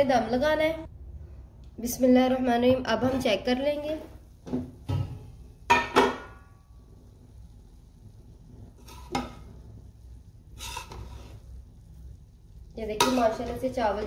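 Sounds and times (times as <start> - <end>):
spoon scraping rice: 8.8 - 9.5, 10.5 - 11.6
metal spoon clanking on pot: 13.0 - 13.6.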